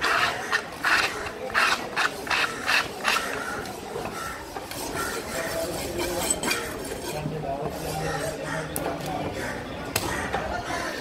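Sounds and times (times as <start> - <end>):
metal scraper on wooden block: 0.0 - 8.2.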